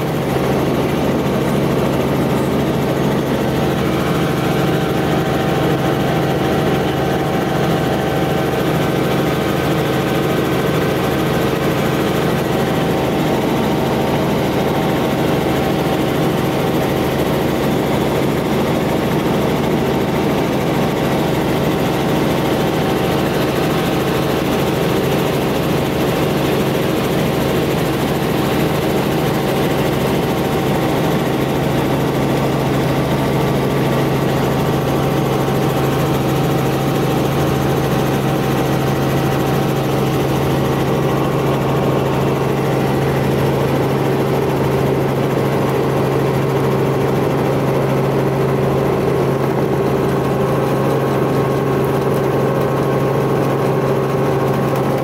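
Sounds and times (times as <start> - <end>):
helicopter engine and rotor drone: 0.0 - 55.0.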